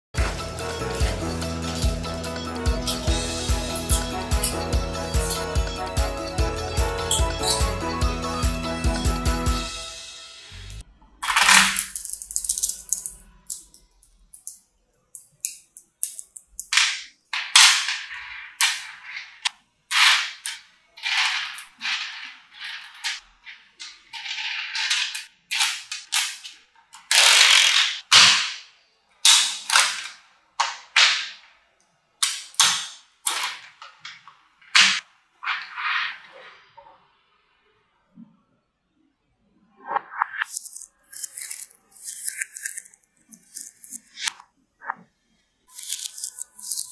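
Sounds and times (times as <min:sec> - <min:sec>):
magnetic balls clicking: 0:11.8 - 0:16.8.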